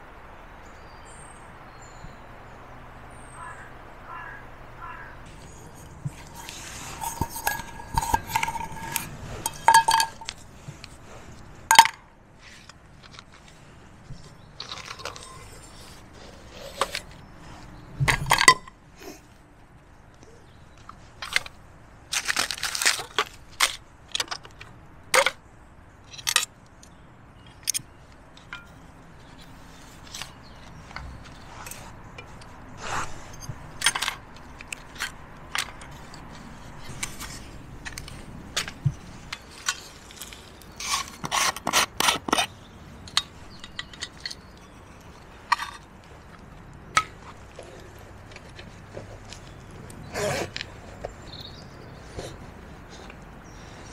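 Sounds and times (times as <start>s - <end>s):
metal cook set clinking: 7.0s - 10.3s.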